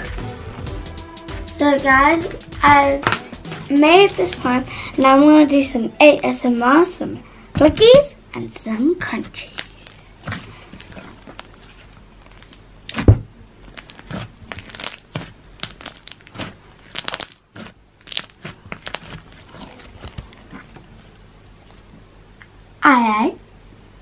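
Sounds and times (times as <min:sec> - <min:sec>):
slime popping: 0:09.2 - 0:20.9
slime clicks and crackles: 0:09.4 - 0:20.9.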